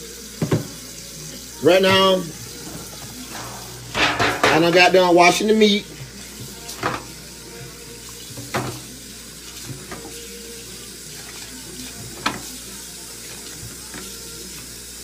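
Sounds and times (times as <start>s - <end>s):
faucet water running into sink: 0.0s - 15.0s
knocks and splashes: 3.5s - 4.9s.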